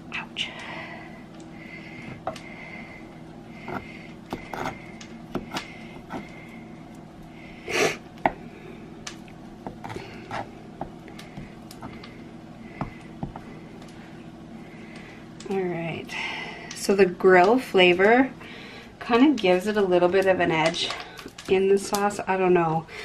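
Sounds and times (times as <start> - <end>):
kitchen fan hum: 0.0 - 23.0
person sniffing: 7.7 - 8.0
knife on cutting board: 9.8 - 10.5.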